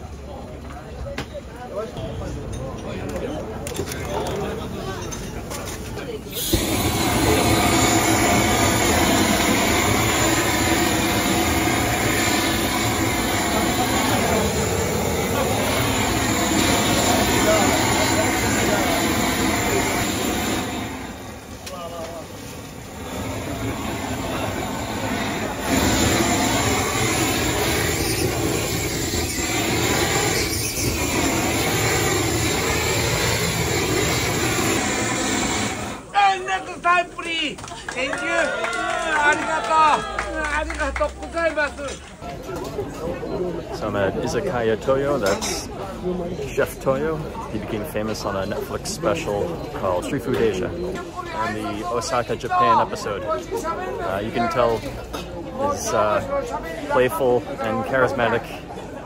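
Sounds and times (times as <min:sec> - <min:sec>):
gas torch flame roaring: 0:06.3 - 0:36.2
food sizzling: 0:06.4 - 0:21.5, 0:22.3 - 0:36.0.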